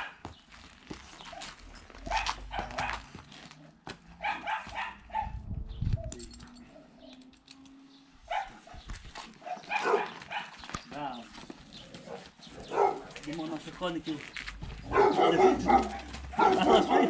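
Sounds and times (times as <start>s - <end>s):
dog barking: 1.4s - 3.2s, 4.2s - 5.4s, 8.3s - 10.6s, 12.1s - 13.2s, 14.8s - 17.0s.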